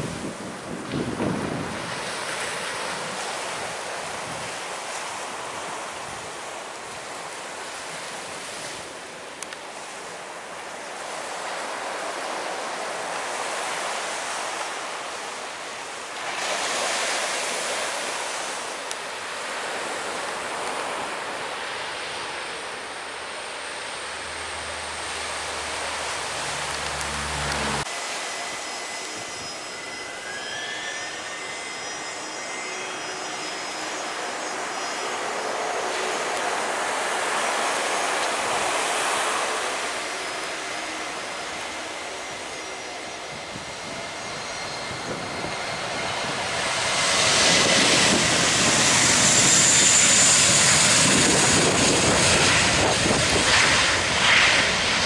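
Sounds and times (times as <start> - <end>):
jet engine whine: 0.0 - 55.0
turboprop plane flying low: 0.0 - 55.0
wind: 0.0 - 55.0
deep propeller hum: 22.4 - 32.7.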